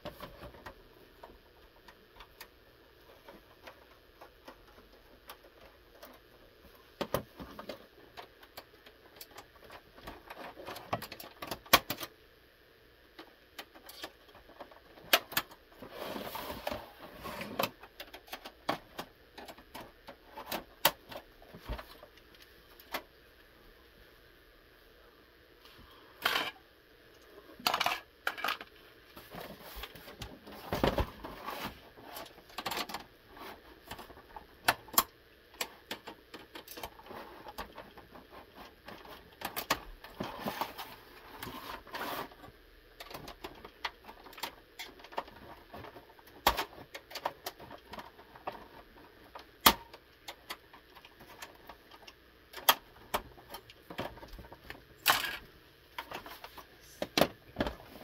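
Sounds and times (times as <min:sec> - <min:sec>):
scraping and rustling: 0:15.8 - 0:23.0, 0:27.5 - 0:34.5, 0:36.6 - 0:49.6.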